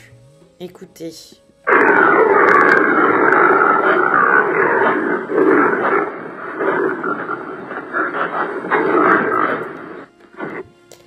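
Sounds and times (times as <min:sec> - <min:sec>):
antelope guttural call: 0:01.6 - 0:10.6.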